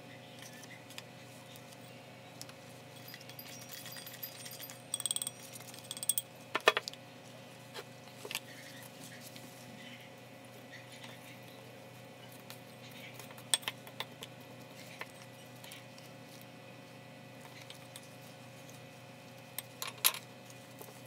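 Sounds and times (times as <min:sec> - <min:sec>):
ringing clink: 0:03.0 - 0:06.3.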